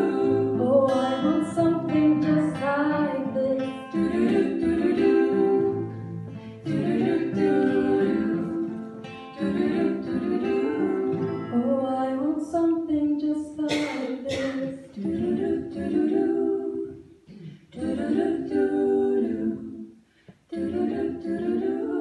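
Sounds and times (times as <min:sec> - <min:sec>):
strummed acoustic guitar: 0:00.0 - 0:11.8
vocal ensemble singing in harmony: 0:00.0 - 0:22.0.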